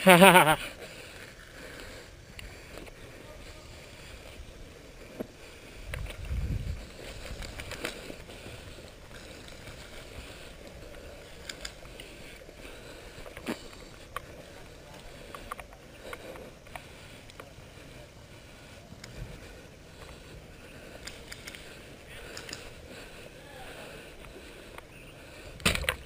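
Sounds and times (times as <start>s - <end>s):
wind rustle on microphone: 5.6s - 10.5s
sharp clicks: 11.4s - 12.1s, 21.0s - 21.7s, 22.3s - 22.8s.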